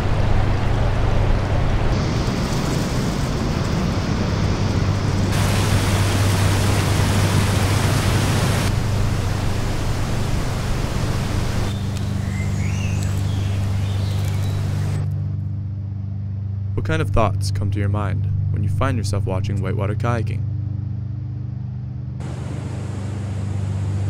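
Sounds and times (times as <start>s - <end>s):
whitewater rapids and waterfall roar: 1.9s - 15.0s
low steady hum: 3.4s - 24.0s
bird chirps: 11.6s - 15.0s.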